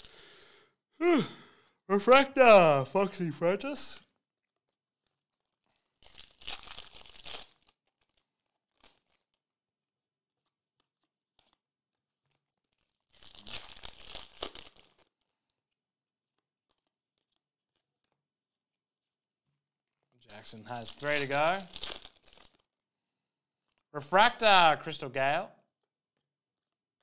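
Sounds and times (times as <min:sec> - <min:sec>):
foil wrappers tearing and crinkling: 0:05.1 - 0:09.5, 0:12.2 - 0:15.6, 0:19.9 - 0:22.8.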